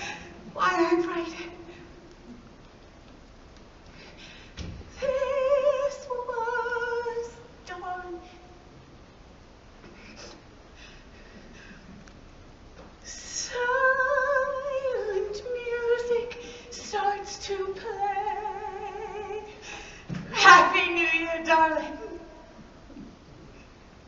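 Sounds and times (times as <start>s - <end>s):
woman singing with vibrato: 0.0s - 2.0s, 4.9s - 8.7s, 13.1s - 22.6s.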